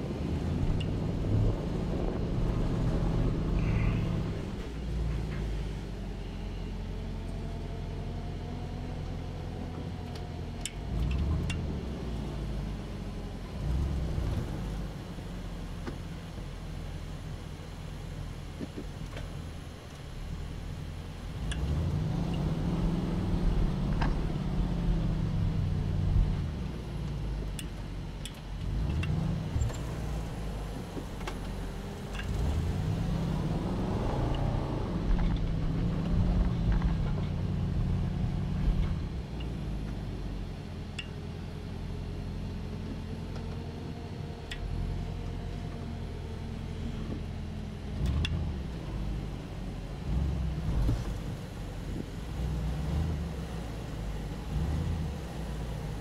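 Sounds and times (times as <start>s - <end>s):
car engine revving uphill: 0.0s - 17.2s, 19.6s - 56.0s.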